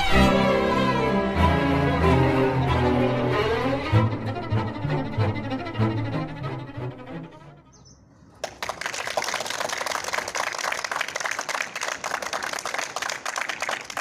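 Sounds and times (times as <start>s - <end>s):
people clapping: 8.4s - 14.0s.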